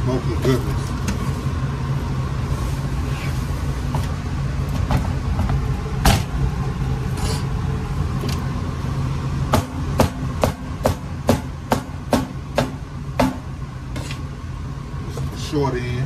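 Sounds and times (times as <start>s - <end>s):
kitchen machinery hum: 0.0s - 16.0s.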